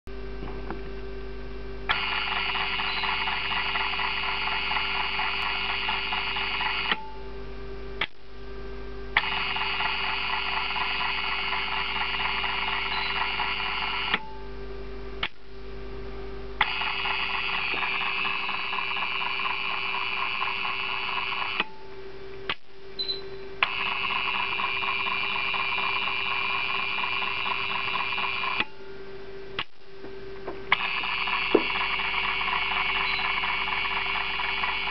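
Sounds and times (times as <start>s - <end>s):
steady electrical hum: 0.1s - 34.9s
timer motor and gears whirring: 1.9s - 7.2s, 9.2s - 14.4s, 16.6s - 21.8s, 22.5s - 28.8s, 30.6s - 34.9s.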